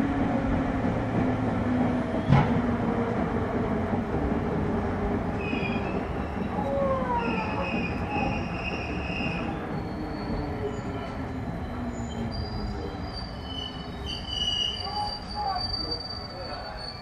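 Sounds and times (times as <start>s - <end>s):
rumble of rails: 0.0s - 17.0s
wheels squealing: 5.4s - 17.0s.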